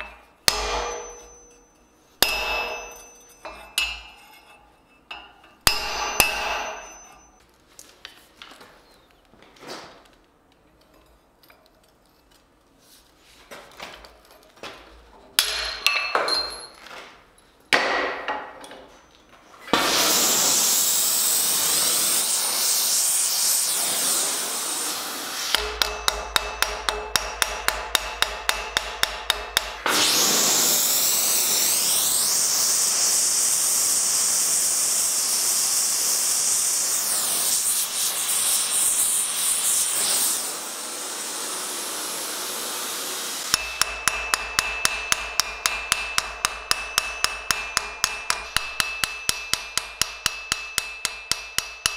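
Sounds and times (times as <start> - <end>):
hammer ringing on anvil: 0.0 - 7.4, 25.5 - 29.9, 43.5 - 51.9.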